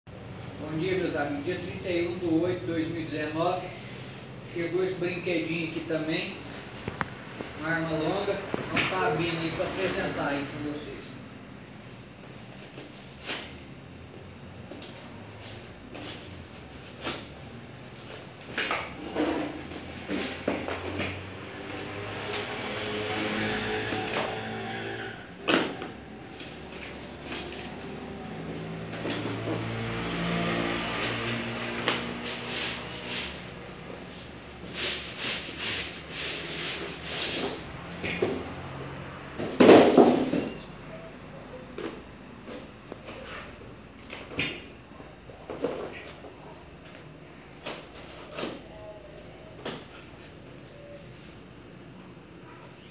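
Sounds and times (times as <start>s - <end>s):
box rubbing and scraping: 26.3s - 37.7s.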